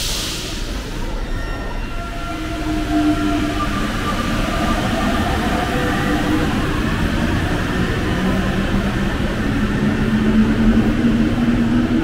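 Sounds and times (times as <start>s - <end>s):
train rumbling: 0.0s - 12.0s.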